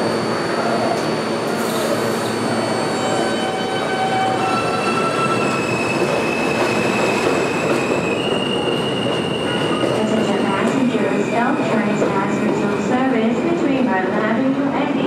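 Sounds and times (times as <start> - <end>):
subway train rumble: 0.0 - 15.0
wheel squeal: 0.6 - 10.0.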